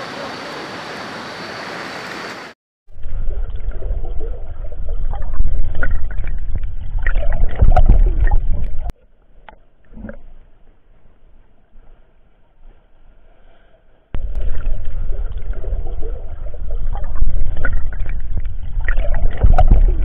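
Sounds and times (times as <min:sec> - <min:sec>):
underwater river gurgling: 0:00.0 - 0:10.4, 0:14.2 - 0:20.0
loud low rumble with crackles: 0:02.9 - 0:08.9, 0:14.1 - 0:20.0.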